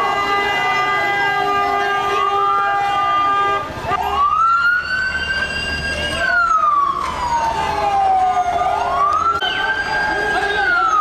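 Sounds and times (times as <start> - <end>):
vehicle siren wailing: 3.8 - 11.0.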